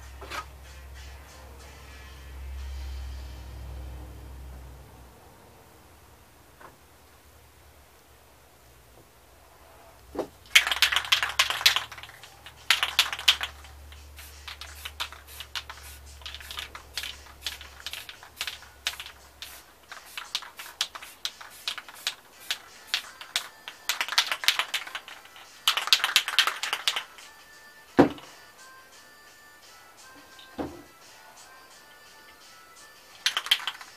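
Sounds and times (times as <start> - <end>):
spray paint can hissing: 10.5 - 27.2, 33.2 - 33.9.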